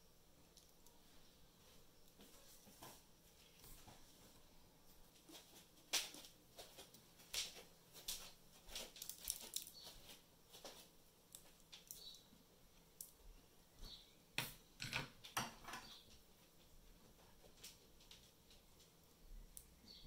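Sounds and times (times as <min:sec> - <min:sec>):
small tools clicking and tapping: 0:08.8 - 0:09.9.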